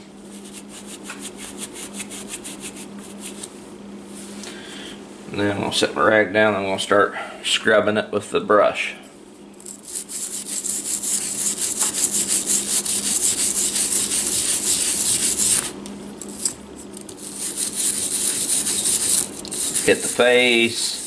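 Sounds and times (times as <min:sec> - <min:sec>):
brush scrubbing metal: 0:09.6 - 0:21.0.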